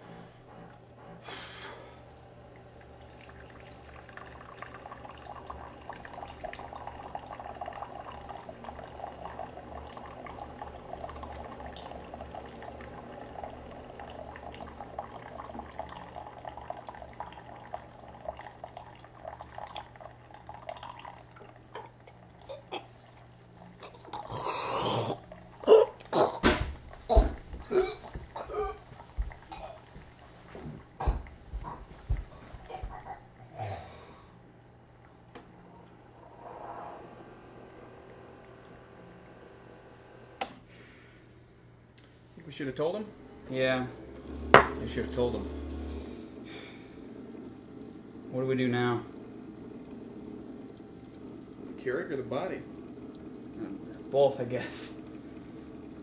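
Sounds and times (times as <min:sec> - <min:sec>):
person drinking liquid: 0:14.4 - 0:34.5, 0:52.9 - 0:54.1
loud choking noise: 0:23.8 - 0:29.8.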